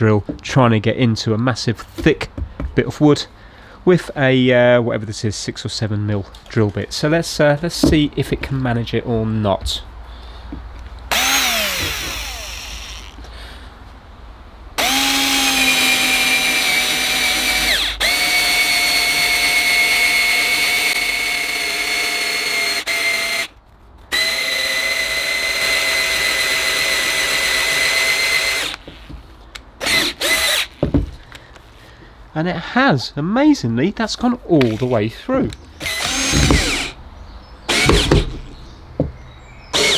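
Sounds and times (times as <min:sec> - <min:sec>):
cordless drill boring into wood: 0:11.1 - 0:13.2, 0:14.8 - 0:23.5, 0:24.1 - 0:28.8, 0:29.8 - 0:30.8, 0:35.8 - 0:37.0, 0:37.7 - 0:38.3.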